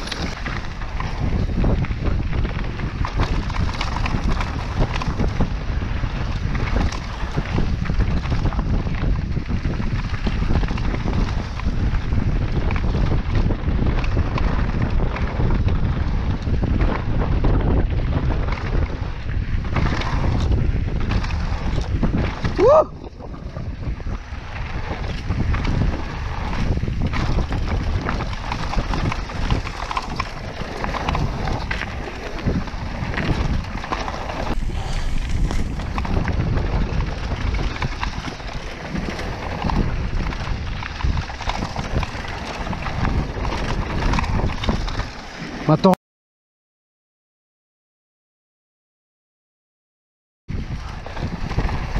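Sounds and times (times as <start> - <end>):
tyres on dirt: 0.0 - 12.1, 23.8 - 45.4
bike rattling over bumps: 0.0 - 45.7, 50.5 - 51.9
wind rushing over microphone: 0.0 - 46.0, 50.5 - 51.9.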